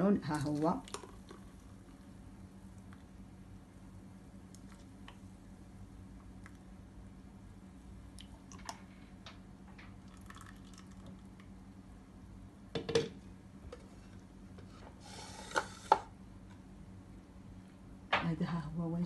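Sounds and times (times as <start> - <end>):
juice pouring into glasses: 10.0 - 11.4
scrape on countertop: 14.6 - 16.1.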